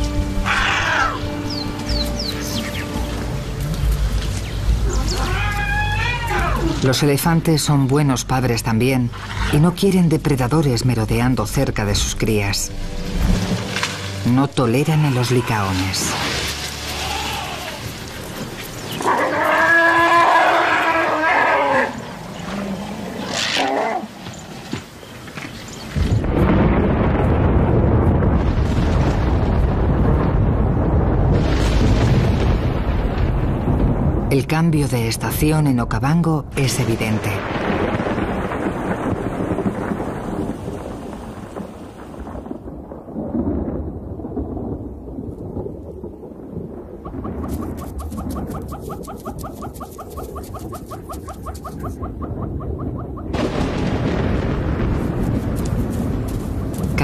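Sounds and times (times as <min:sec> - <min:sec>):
elephant trumpeting: 0:00.4 - 0:01.3, 0:04.8 - 0:06.8, 0:19.0 - 0:24.2
thunder rumbling: 0:25.8 - 0:57.0.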